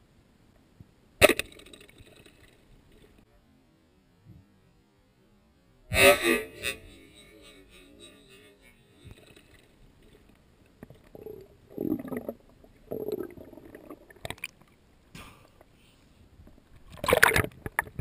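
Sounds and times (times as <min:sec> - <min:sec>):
muffled underwater noise: 0:05.2 - 0:14.1.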